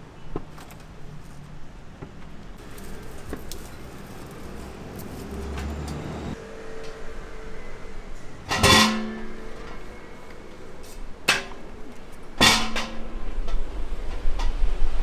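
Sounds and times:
passing motor vehicle rumble: 2.5s - 12.4s
cookware clank: 8.5s - 9.4s.

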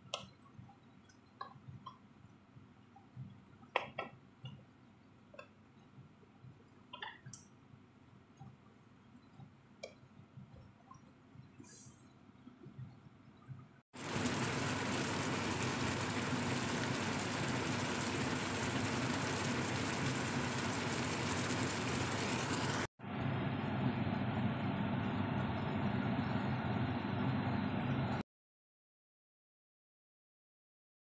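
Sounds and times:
curry bubbling in a pan: 14.0s - 22.9s.

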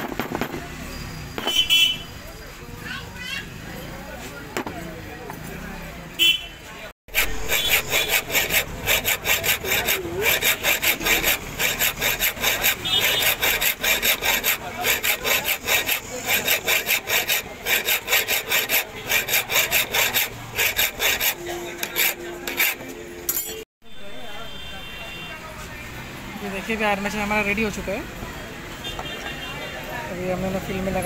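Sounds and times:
hand file rasping on metal: 7.1s - 23.0s.

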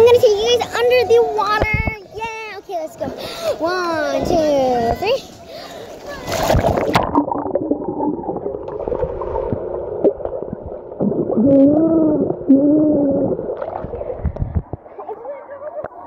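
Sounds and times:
muffled child's voice underwater: 3.0s - 6.9s, 11.4s - 16.0s
bubbling water: 6.4s - 15.1s.

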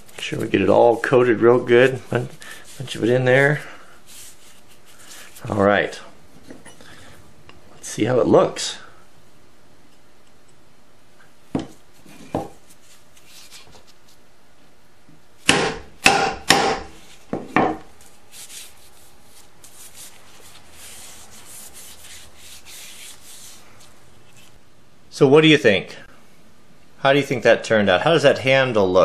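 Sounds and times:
hands rubbing wooden handle: 0.0s - 5.6s, 11.9s - 14.2s, 18.0s - 24.6s.

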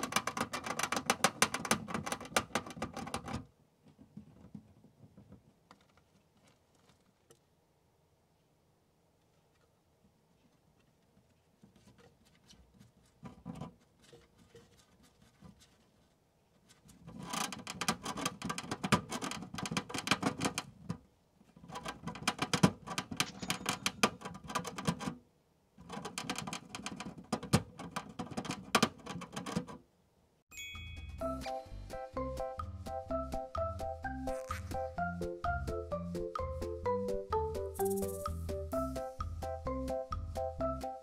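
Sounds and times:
hamster gnawing on plastic: 0.0s - 3.5s, 10.4s - 23.2s, 25.8s - 29.8s.

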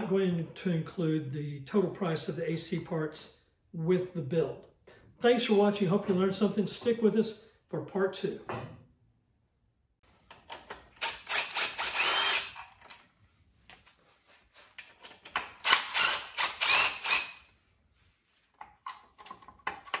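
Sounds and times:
cordless drill driving bolts: 10.3s - 13.0s, 15.1s - 17.5s.

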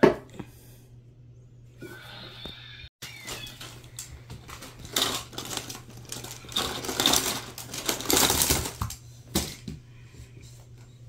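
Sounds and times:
plastic tiles clattering: 3.3s - 9.0s.

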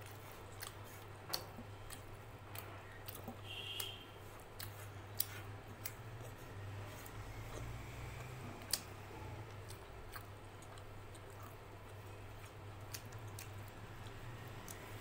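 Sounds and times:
fingers squishing food: 0.0s - 14.9s.

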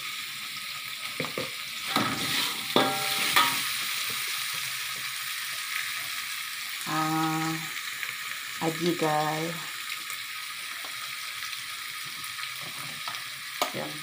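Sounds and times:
paste sizzling in a wok: 0.0s - 14.0s
metal ladle scraping: 1.9s - 3.7s.

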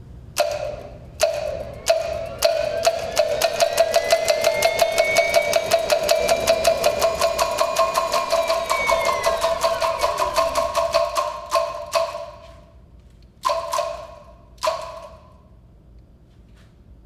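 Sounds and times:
wooden block knocking: 0.4s - 12.4s
falling tone sweep: 1.3s - 11.0s.

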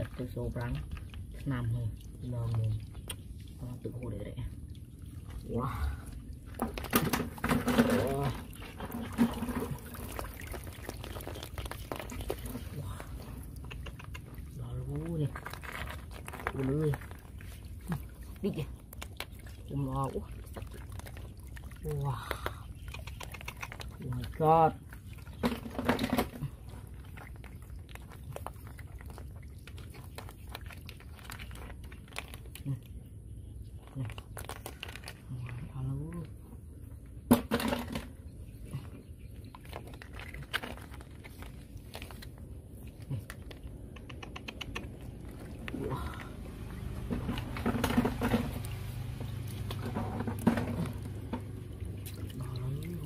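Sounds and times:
muddy water sloshing: 0.0s - 53.0s
snail shells clicking together: 13.5s - 14.4s, 22.2s - 24.0s, 42.9s - 46.4s.

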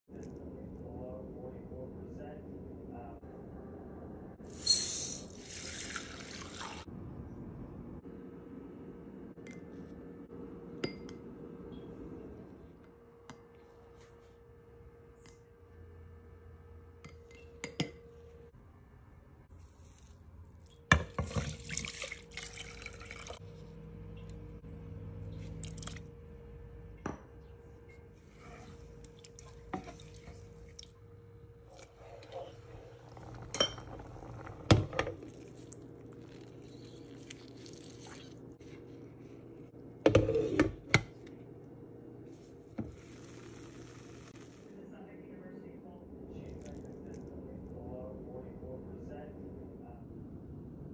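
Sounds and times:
liquid pouring and stirring: 4.5s - 6.9s, 19.6s - 23.5s, 25.3s - 26.1s, 28.2s - 31.0s, 31.6s - 40.7s
steady low hum: 22.5s - 50.9s.

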